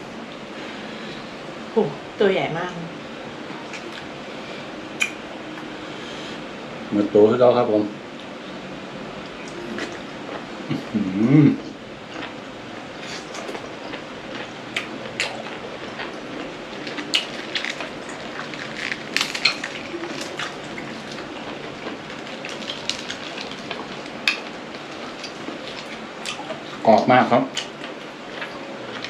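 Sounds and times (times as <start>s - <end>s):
chewing and crunching: 12.1s - 29.0s.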